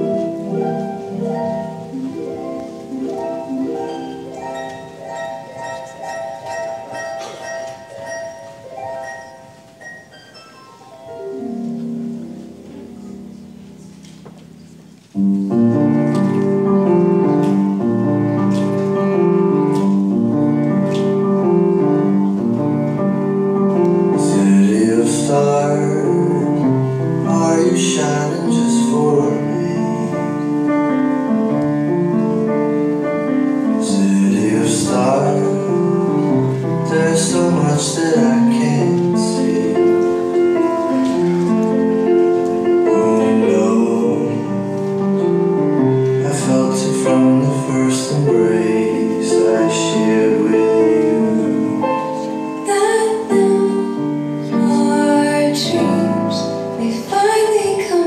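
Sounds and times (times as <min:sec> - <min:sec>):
piano: 0:00.0 - 0:58.0
person singing: 0:23.9 - 0:30.7, 0:33.5 - 0:41.3, 0:42.4 - 0:45.4, 0:46.1 - 0:58.0.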